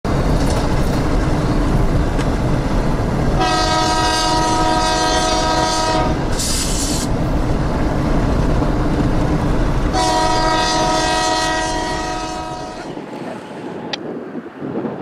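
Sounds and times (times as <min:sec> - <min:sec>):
diesel locomotives rumbling past: 0:00.0 - 0:15.0
train horn: 0:03.4 - 0:06.5, 0:09.9 - 0:13.0.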